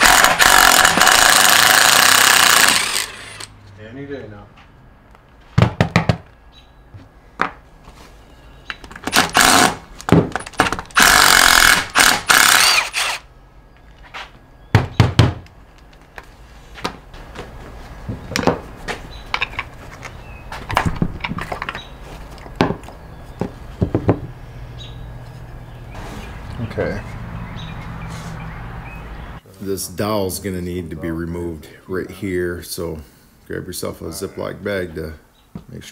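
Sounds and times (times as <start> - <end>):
impact wrench hammering bolts: 0.0 - 3.4.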